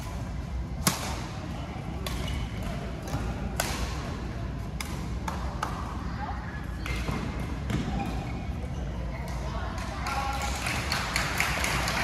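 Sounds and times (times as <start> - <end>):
low hum of large hall: 0.0 - 12.0
racket hitting shuttlecock: 0.8 - 1.3, 3.0 - 4.0.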